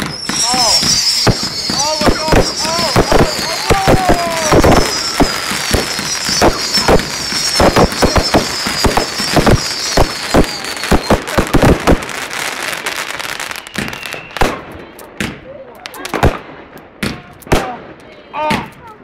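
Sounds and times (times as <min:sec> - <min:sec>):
high falling whistle: 0:00.0 - 0:11.3, 0:13.3 - 0:14.4
fireworks bangs: 0:00.0 - 0:19.0.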